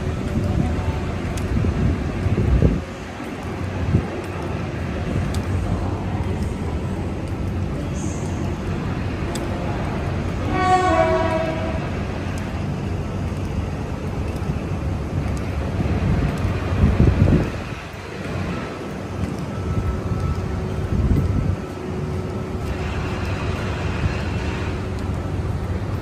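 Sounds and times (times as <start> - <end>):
train carriages rumbling: 0.0 - 26.0
two-note train horn: 10.4 - 12.0.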